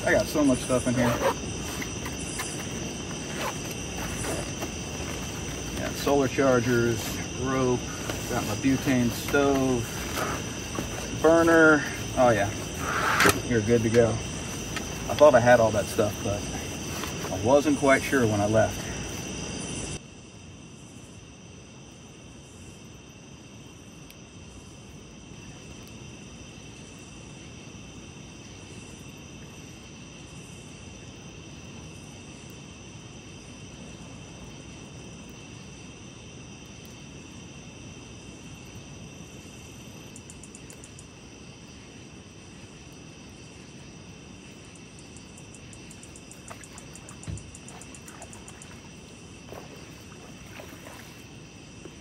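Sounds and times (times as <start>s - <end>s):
night insects trilling: 0.0s - 52.0s
water spilling over dam: 46.4s - 51.4s.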